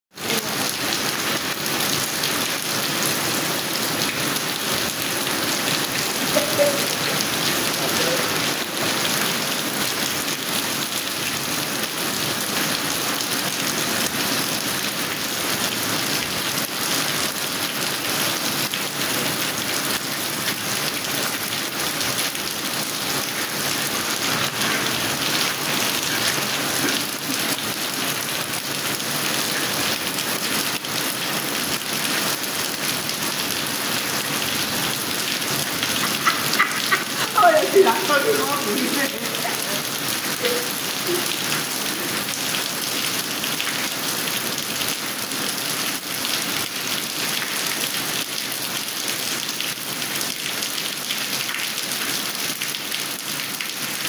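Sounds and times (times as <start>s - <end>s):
heavy rain splashing into puddles: 0.1s - 54.0s.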